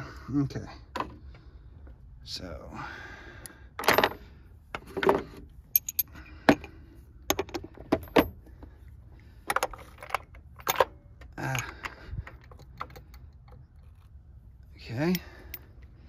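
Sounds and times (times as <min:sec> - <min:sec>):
metal hand tools clinking: 0:05.8 - 0:06.1.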